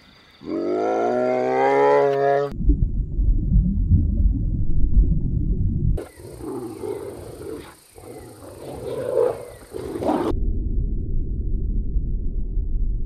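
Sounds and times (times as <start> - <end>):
low rumble: 2.5 - 6.0, 10.3 - 13.0
wild dogs calling: 6.0 - 10.3.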